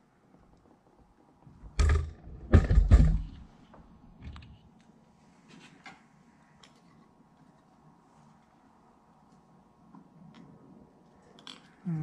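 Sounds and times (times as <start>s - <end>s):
dull knocks and rattles: 1.7s - 3.5s
light clicks of small parts: 9.3s - 11.8s.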